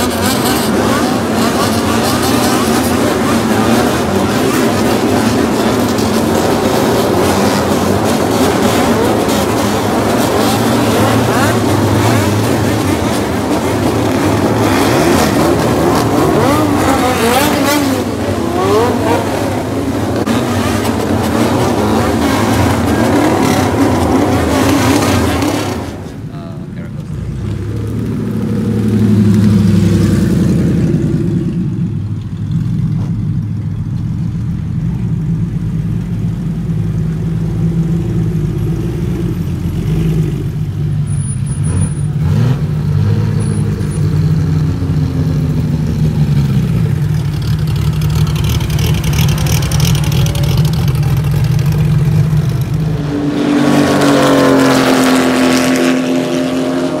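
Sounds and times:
car engine revving high: 0.0 - 25.8, 48.3 - 57.0
car engines pulling away: 0.0 - 57.0.

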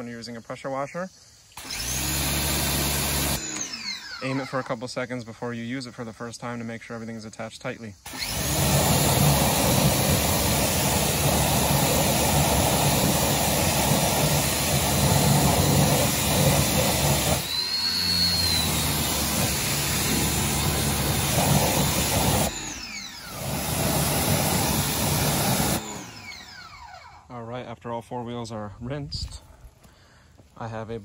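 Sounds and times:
pressure washer jet hissing: 1.6 - 4.7, 8.1 - 26.9.

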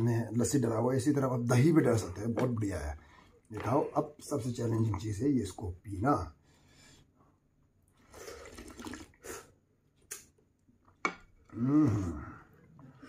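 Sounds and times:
person slurping broth: 8.0 - 10.2
short vocal sound: 11.5 - 12.5.

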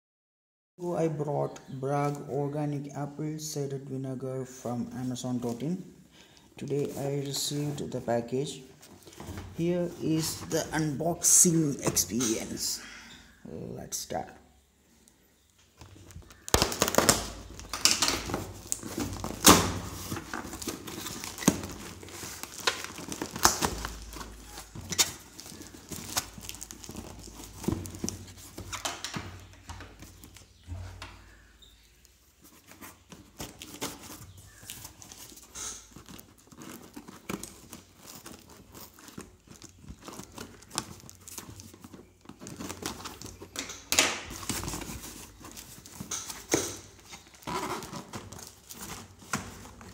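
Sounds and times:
plastic and cardboard crinkling: 4.6 - 12.8, 15.5 - 49.9
plastic and tape ripping: 15.8 - 30.4, 32.7 - 49.9.

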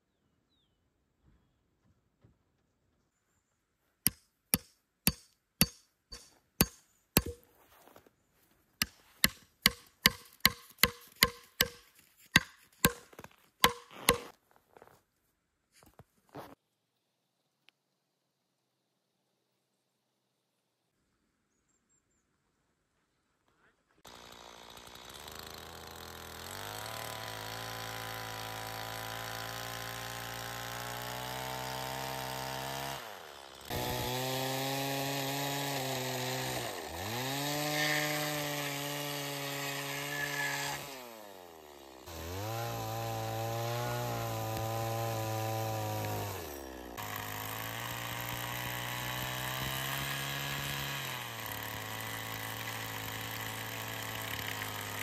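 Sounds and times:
small engine revving: 24.0 - 55.0.

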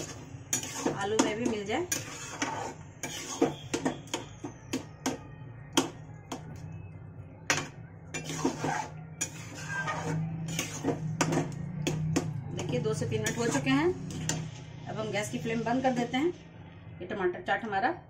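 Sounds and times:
metal spatula scraping a steel pan: 0.0 - 5.2, 7.5 - 14.5.

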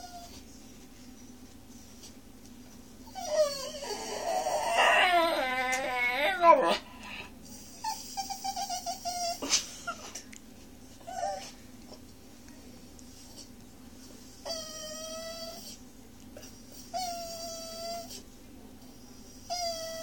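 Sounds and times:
puppy whining: 0.0 - 0.6, 3.0 - 10.2, 11.0 - 11.6, 14.4 - 15.8, 16.4 - 18.3, 19.3 - 20.0
puppy howling: 3.1 - 6.9.

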